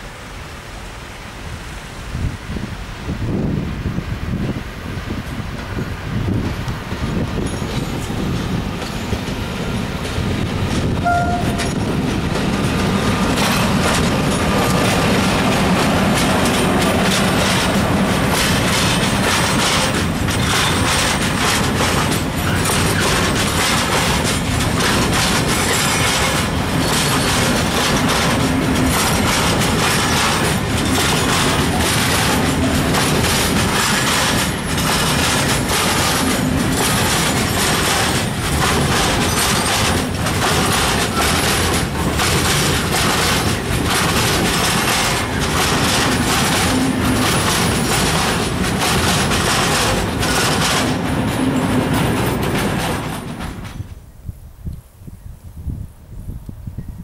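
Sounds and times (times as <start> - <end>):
freight train rumbling past: 0.0 - 54.7
wheels clattering over rail joints: 5.2 - 54.1
brief high tone: 11.0 - 11.8.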